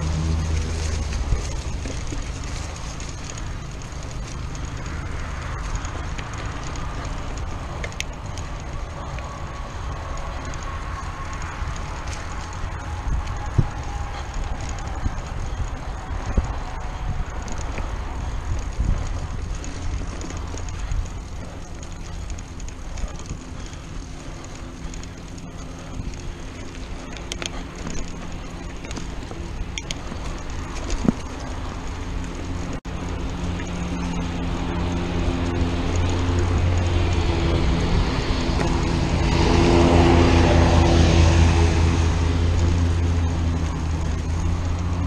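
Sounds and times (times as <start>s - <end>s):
bike rattles: 0.0s - 45.0s
bike tyre rumble: 0.0s - 45.0s
droning hum: 0.0s - 45.0s
wind buffeting: 0.0s - 45.0s.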